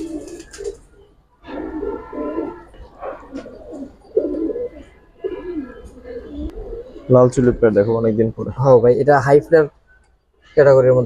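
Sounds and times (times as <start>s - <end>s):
pigeons cooing: 0.0s - 8.8s.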